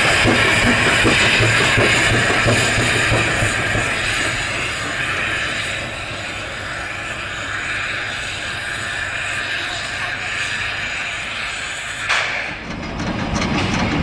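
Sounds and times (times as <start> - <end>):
steam locomotive exhaust hissing: 0.0 - 14.0.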